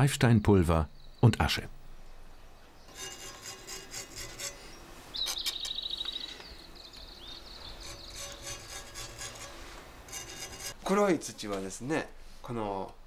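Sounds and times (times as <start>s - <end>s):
spatula scraping clay on blade: 2.9s - 5.7s, 7.7s - 10.9s
high fast trilling call: 7.1s - 9.2s.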